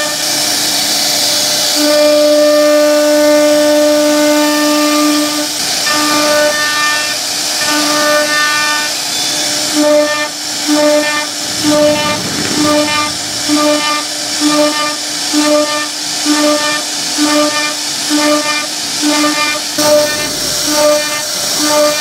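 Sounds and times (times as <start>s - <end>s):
router spindle whining: 11.2s - 13.9s.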